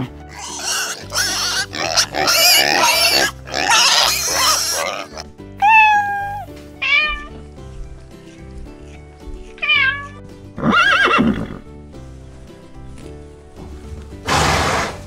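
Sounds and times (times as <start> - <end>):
background music: 0.0 - 15.0
cat meowing: 5.6 - 7.4, 9.6 - 10.2
horse whinnying: 9.4 - 11.7, 14.3 - 15.0.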